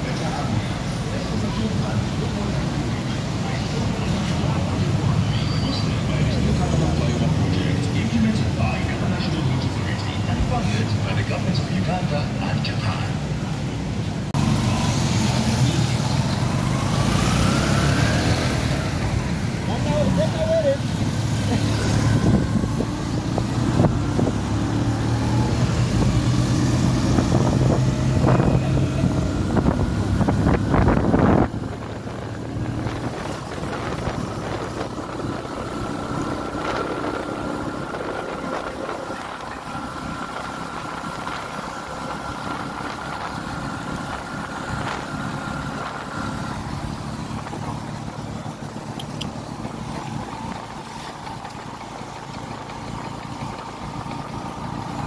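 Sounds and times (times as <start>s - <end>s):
road and traffic noise: 0.0s - 55.0s
motorcycle engine running: 14.4s - 55.0s.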